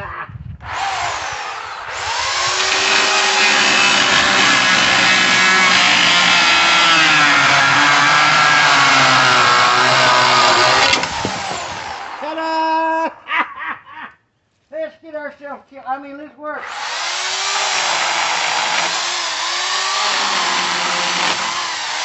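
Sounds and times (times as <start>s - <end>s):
electric chainsaw cutting wood: 0.6s - 12.2s, 16.6s - 22.0s.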